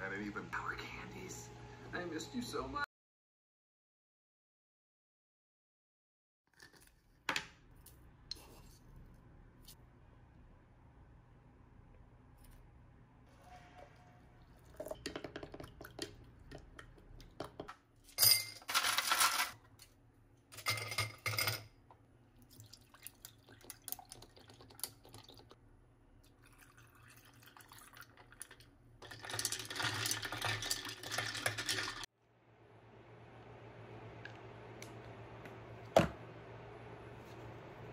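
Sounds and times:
liquid poured over ice: 26.3s - 32.0s
ice cubes rattling in glass: 29.0s - 32.0s.

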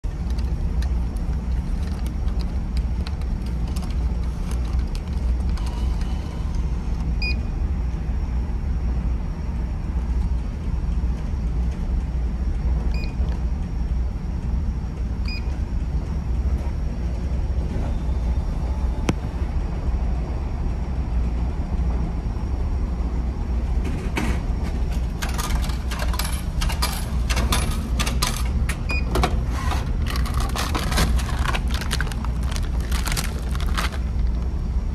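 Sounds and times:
ferry engine rumble: 9.1s - 34.9s
vending machine keypad beeps: 12.9s - 13.2s, 15.3s - 15.5s, 28.9s - 29.2s.

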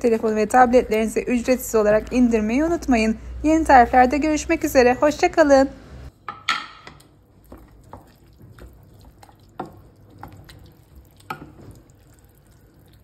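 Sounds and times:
wooden spoon stirring thick food: 6.8s - 13.0s.

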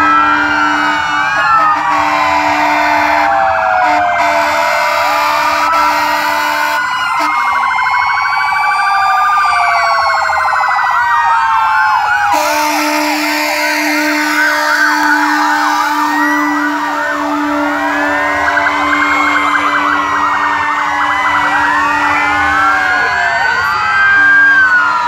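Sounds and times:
fire truck sirens wailing: 0.0s - 25.0s
siren fast warbling yelp: 0.0s - 25.0s
siren short whoops: 8.6s - 25.0s.

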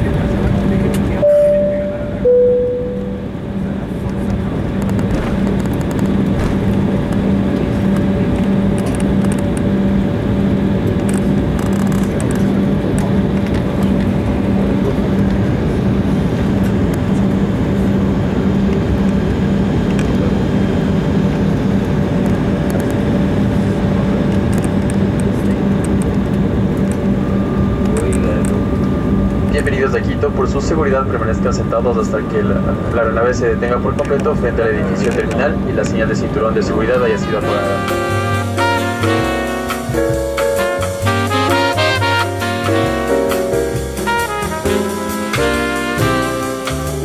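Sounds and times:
low steady hum: 0.0s - 46.5s
aircraft engine and airflow noise: 0.0s - 47.0s.

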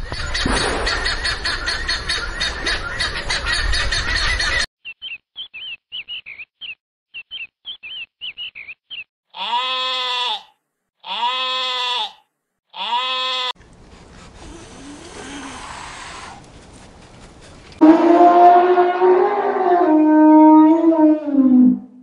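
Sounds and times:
sheep bleating: 9.3s - 13.6s
elephant call: 17.8s - 21.9s.

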